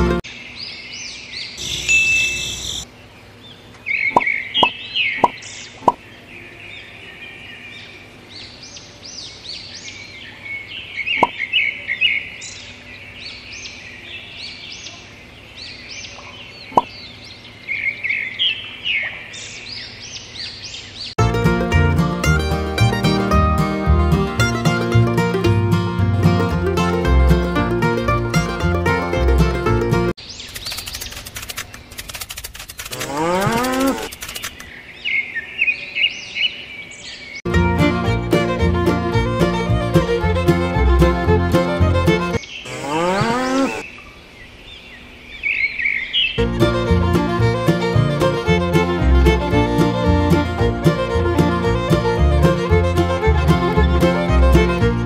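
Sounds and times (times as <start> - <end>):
small birds chirping: 0.2 - 21.2, 30.2 - 37.5
cow mooing: 33.0 - 33.9, 42.7 - 43.8.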